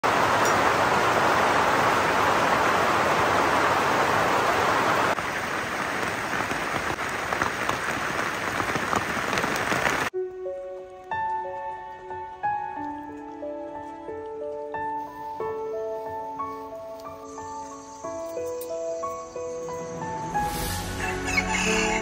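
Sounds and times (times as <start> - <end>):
steady rain falling: 0.0 - 22.0
raindrops ticking: 5.1 - 15.7.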